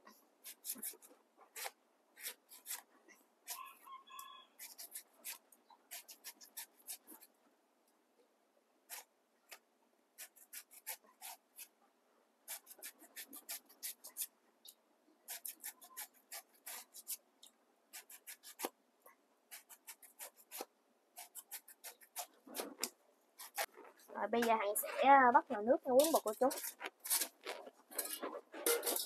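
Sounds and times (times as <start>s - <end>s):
knife shaving banana blossom: 0.4s - 7.3s, 8.9s - 9.6s, 10.2s - 11.7s, 12.5s - 14.3s, 15.3s - 17.2s, 17.9s - 18.8s, 19.5s - 23.8s, 25.9s - 29.0s.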